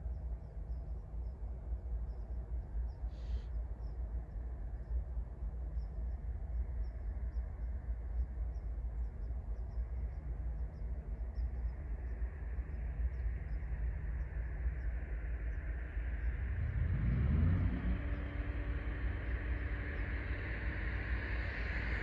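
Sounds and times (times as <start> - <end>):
faint bird chirps: 0.0 - 16.8
low rumble: 0.0 - 22.0.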